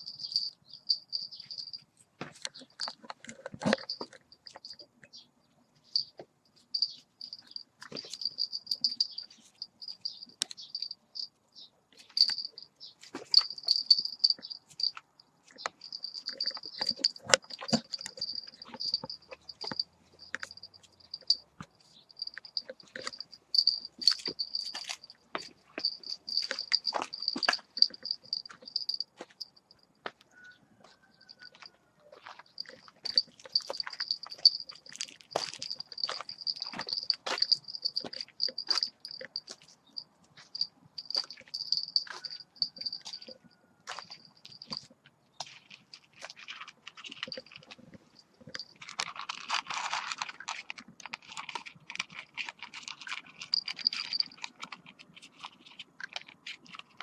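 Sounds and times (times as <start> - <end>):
crickets chirping: 0.0 - 1.8, 6.7 - 11.3, 12.1 - 15.0, 15.6 - 29.8, 32.5 - 44.8, 53.5 - 54.4.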